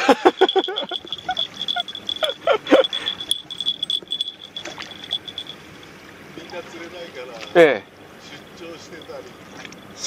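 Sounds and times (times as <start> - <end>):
rapid high-pitched beeping: 0.4 - 5.6.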